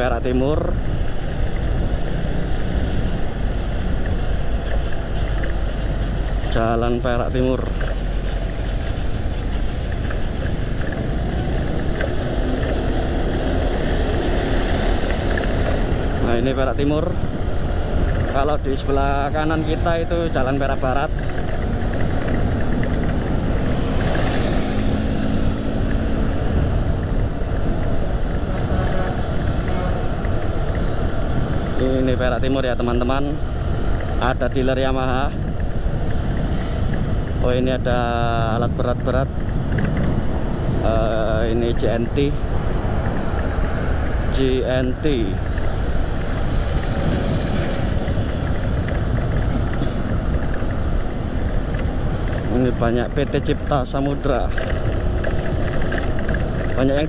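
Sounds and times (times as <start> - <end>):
motorcycle engine hum: 0.0 - 57.0
passing traffic: 0.0 - 57.0
wind rumble on microphone: 0.0 - 57.0.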